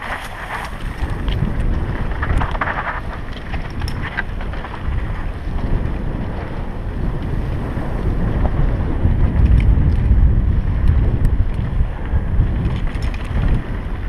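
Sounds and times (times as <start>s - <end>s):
tyres rumbling on dirt trail: 0.0s - 14.0s
wind buffeting microphone: 0.0s - 14.0s
light clicks and rattles: 0.5s - 5.0s, 9.4s - 10.2s, 12.5s - 13.7s.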